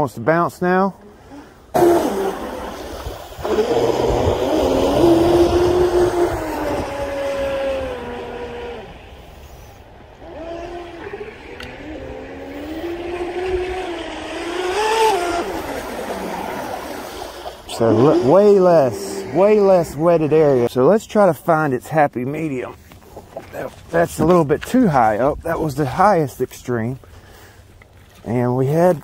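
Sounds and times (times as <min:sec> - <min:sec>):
rc boat motor running: 0:01.3 - 0:20.7.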